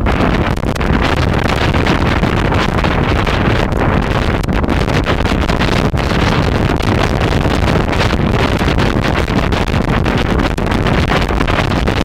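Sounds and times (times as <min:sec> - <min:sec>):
water rushing along hull: 0:00.0 - 0:12.0
wind buffeting microphone: 0:00.0 - 0:12.0.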